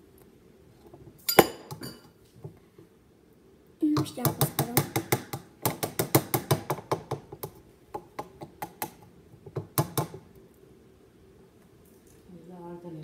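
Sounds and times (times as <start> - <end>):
metal spoon clinking on glass jar: 1.3 - 2.1.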